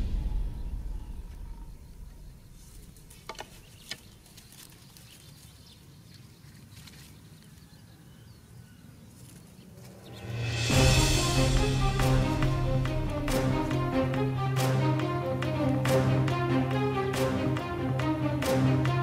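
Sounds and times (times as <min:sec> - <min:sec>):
background music: 0:10.0 - 0:19.0.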